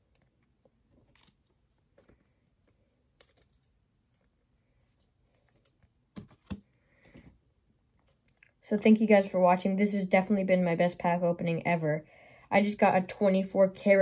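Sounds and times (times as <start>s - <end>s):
trading cards rustling: 0.4s - 7.2s.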